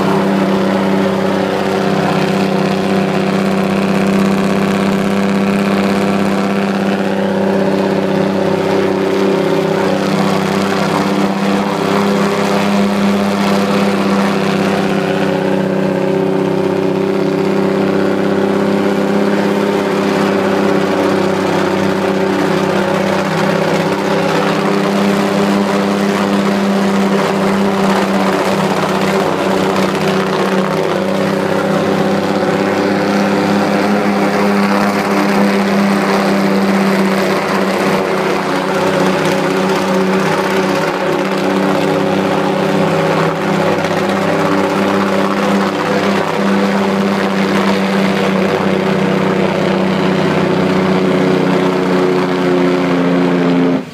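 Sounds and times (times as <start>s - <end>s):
truck diesel engine running: 0.0s - 53.9s.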